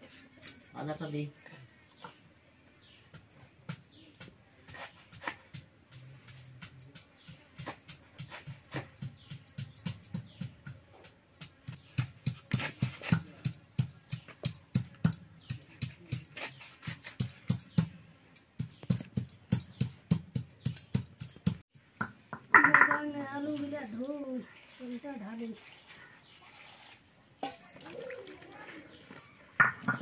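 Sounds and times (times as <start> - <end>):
rhythmic knocking on hard surface: 5.5 - 10.8, 18.6 - 23.1.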